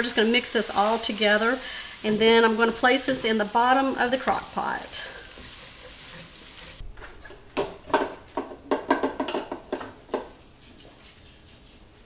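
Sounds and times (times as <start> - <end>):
wooden spoon scraping a skillet: 0.0 - 7.5.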